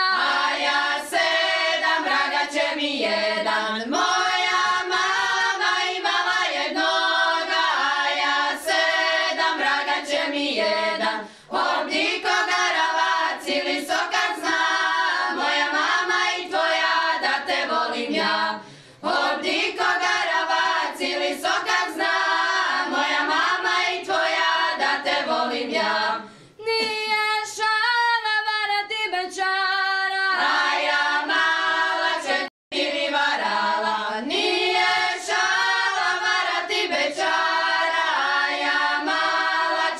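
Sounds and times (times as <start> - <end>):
women singing in harmony: 0.0 - 39.9.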